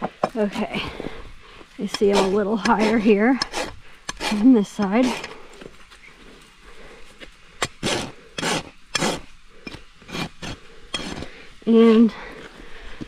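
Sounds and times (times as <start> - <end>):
rasp scraping a hoof: 1.8 - 5.5, 7.6 - 12.1.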